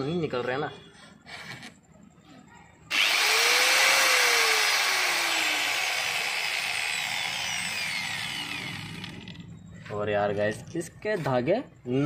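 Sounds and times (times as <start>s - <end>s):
angle grinder whine: 2.9s - 9.5s.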